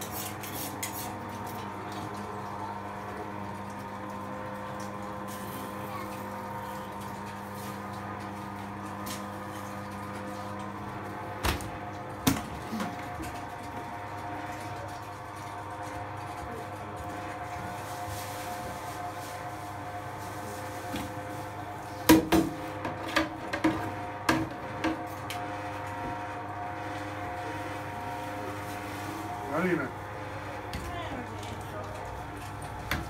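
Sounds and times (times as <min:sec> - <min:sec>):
steady mechanical hum: 0:00.0 - 0:33.0.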